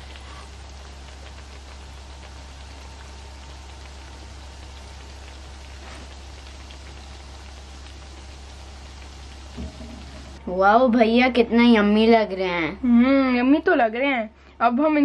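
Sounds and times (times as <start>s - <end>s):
food sizzling in hot oil: 0.0s - 10.6s
low hum: 0.0s - 10.6s.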